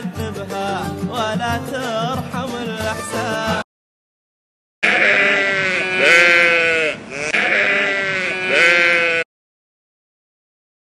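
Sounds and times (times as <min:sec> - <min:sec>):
sheep bleating: 0:04.8 - 0:09.3.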